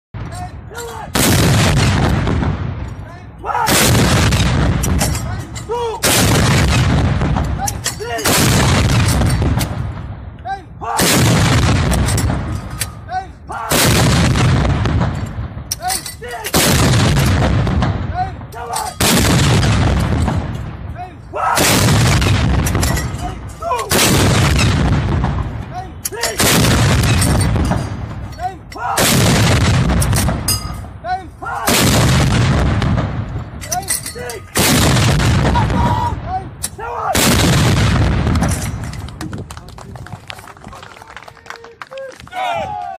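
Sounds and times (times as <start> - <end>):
artillery blast rumbling: 1.1 - 3.0, 3.6 - 5.3, 6.0 - 7.6, 8.2 - 10.3, 11.0 - 12.8, 13.7 - 15.7, 16.5 - 25.7, 26.4 - 28.3, 29.0 - 31.0, 31.6 - 33.6, 34.5 - 36.3, 37.1 - 39.2.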